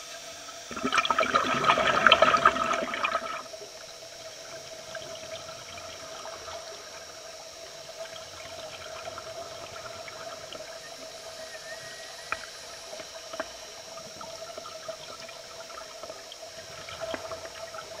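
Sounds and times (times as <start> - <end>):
steady underwater hum: 0.0 - 18.0
air bubbling underwater: 0.7 - 3.5.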